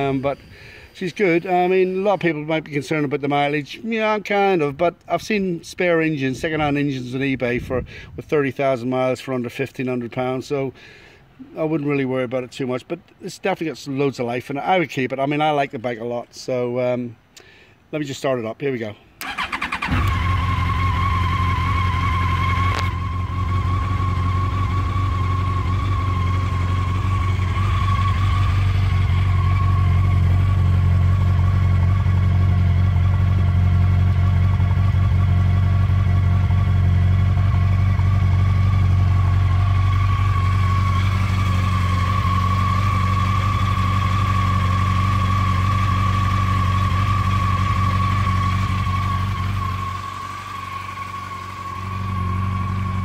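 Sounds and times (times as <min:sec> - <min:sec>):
motorcycle engine idling: 0:19.2 - 0:53.0.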